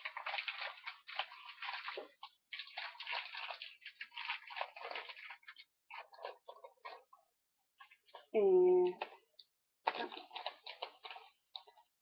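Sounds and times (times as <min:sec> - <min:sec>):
packaging rustling and crinkling: 0:00.0 - 0:07.2, 0:09.8 - 0:12.0.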